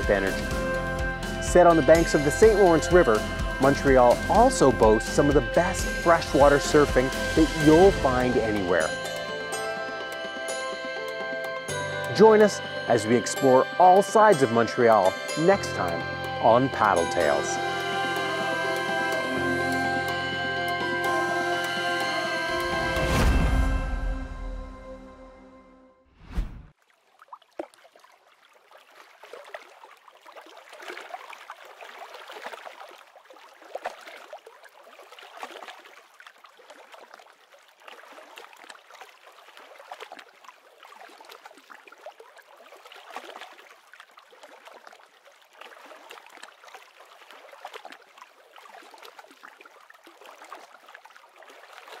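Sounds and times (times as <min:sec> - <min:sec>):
small waves lapping: 0:26.7 - 0:52.0.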